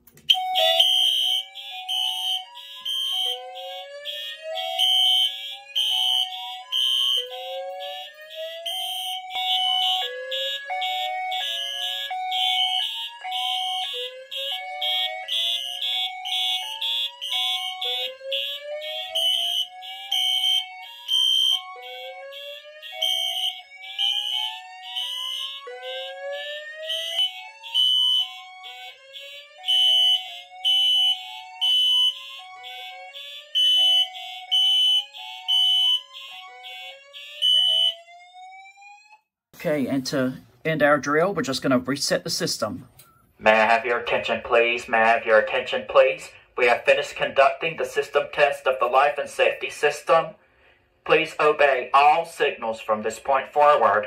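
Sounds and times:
electronic horns pulsing: 0.0 - 38.3
rising alarm tone: 0.3 - 39.2.

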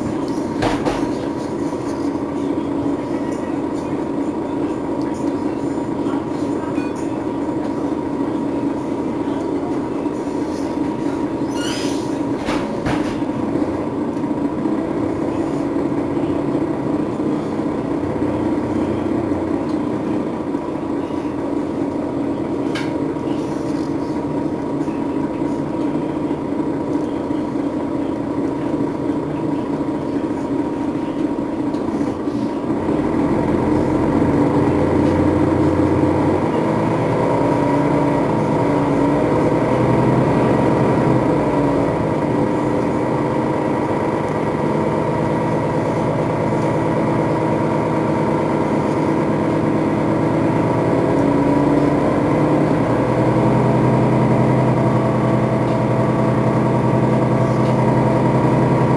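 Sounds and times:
bus engine running: 0.0 - 58.9
thin constant whine: 13.3 - 58.9.

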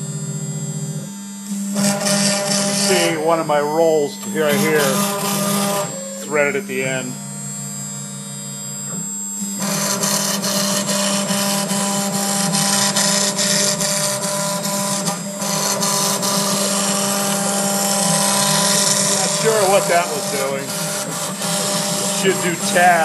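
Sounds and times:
router spindle humming: 0.0 - 23.0
bit cutting plastic: 9.6 - 23.0.

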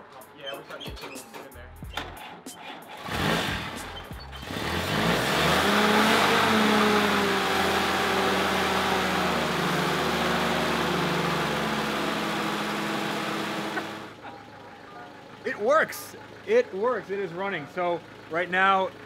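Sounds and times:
car engine starting and revving: 2.8 - 19.0.

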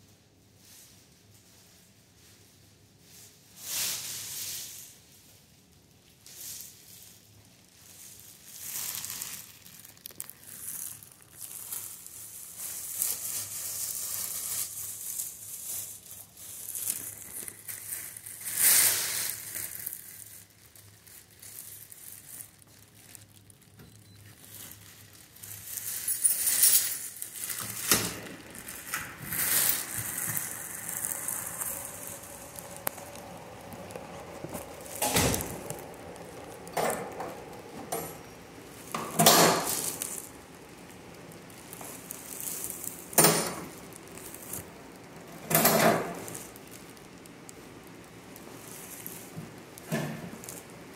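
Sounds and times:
plastic gown crinkling: 0.3 - 50.9.

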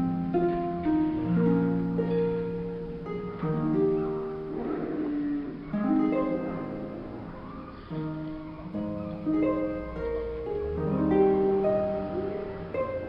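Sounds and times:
plucked harp-like chords: 0.0 - 13.0.

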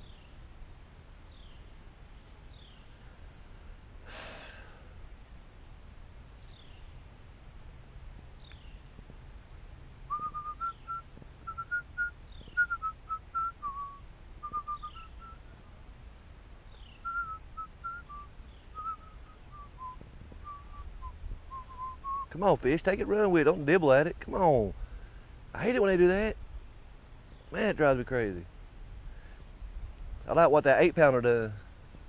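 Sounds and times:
person whistling a tune: 10.1 - 15.4, 17.1 - 22.3.

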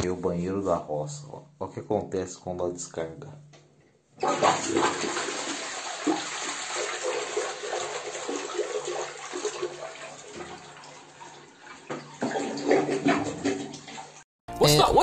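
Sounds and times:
toilet flushing: 4.2 - 14.2.

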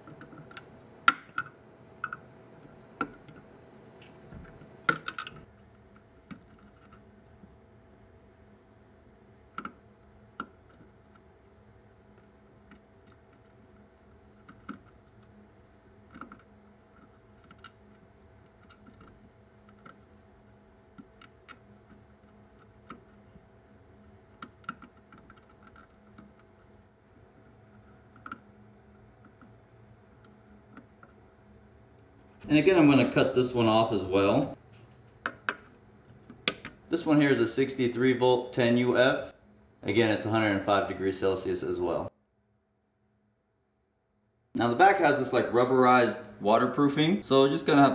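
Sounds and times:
faint steady hum: 0.0 - 47.9.

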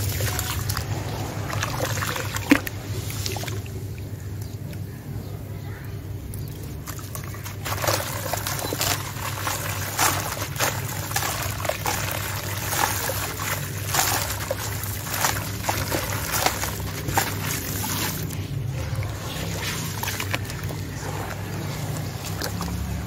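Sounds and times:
crumbs dropping into water: 6.8 - 18.4.

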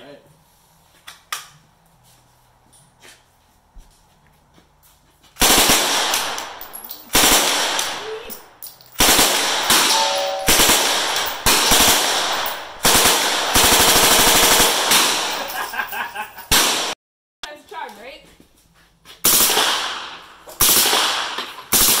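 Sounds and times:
automatic gunfire: 5.4 - 8.2, 9.0 - 15.6, 16.5 - 17.0, 19.3 - 22.0.

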